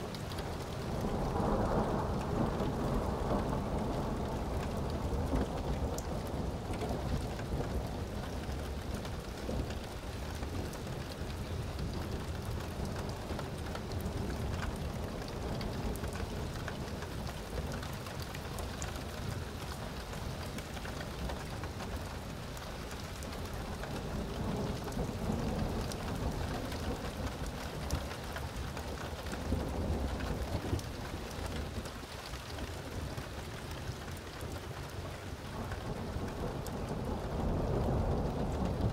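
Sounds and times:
steady rain falling: 0:00.0 - 0:38.9
rolling thunder rumble: 0:00.5 - 0:18.6, 0:33.9 - 0:38.9.

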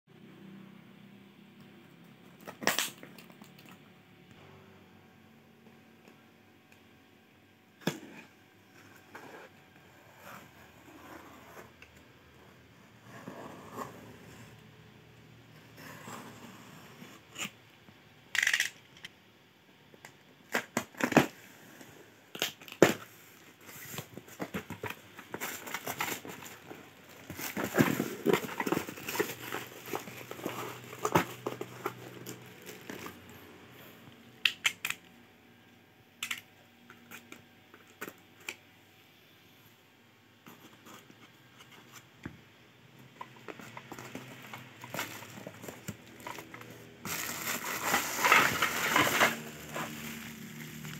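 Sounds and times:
packaging crinkling and tearing: 0:23.9 - 0:33.2, 0:43.5 - 0:50.9.

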